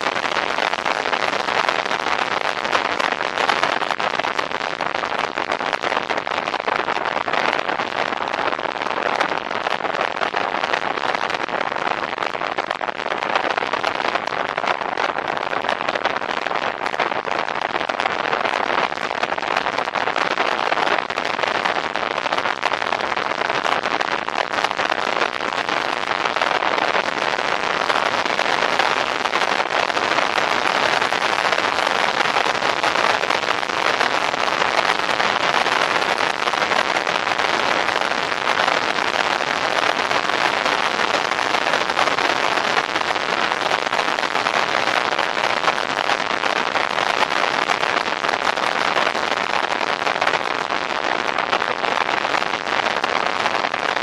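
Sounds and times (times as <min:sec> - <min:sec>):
wind noise on microphone: 0:00.0 - 0:54.0.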